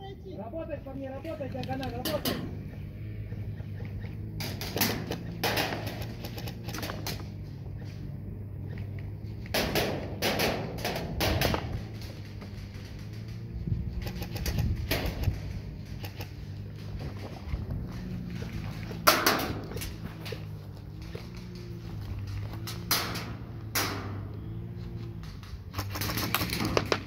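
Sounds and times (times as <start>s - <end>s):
low hum: 0.0s - 27.0s
airsoft guns firing: 4.2s - 7.4s, 9.4s - 13.0s, 19.0s - 19.8s, 25.7s - 27.0s.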